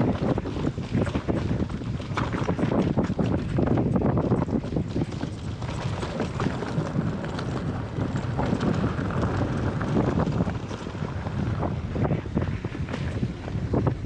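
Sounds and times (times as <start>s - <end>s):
bike rattling and knocking: 0.0s - 13.8s
wind rushing over microphone: 0.0s - 14.0s
tyres crunching on gravel: 4.6s - 12.0s.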